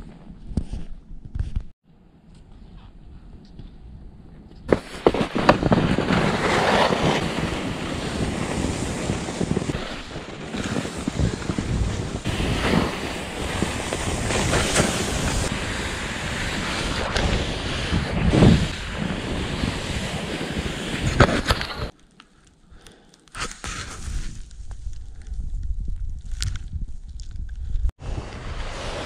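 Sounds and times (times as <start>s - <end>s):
wind rushing over microphone: 3.8s - 21.9s, 23.8s - 29.0s
skis hissing through snow: 4.7s - 21.9s, 23.4s - 24.5s, 28.0s - 29.0s.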